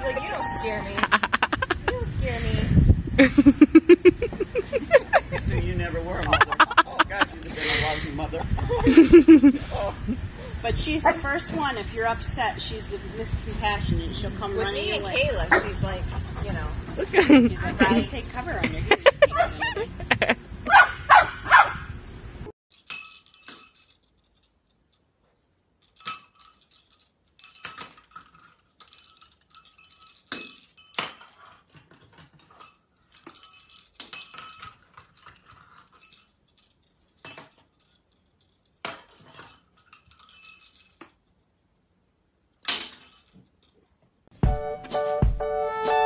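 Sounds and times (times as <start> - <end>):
small bells jingling: 0.0 - 2.4, 3.4 - 7.8, 11.1 - 19.4, 22.7 - 41.5, 42.6 - 43.8.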